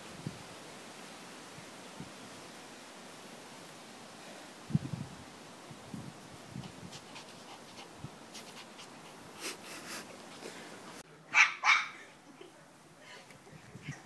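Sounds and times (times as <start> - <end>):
rustling on grass: 0.0 - 11.0.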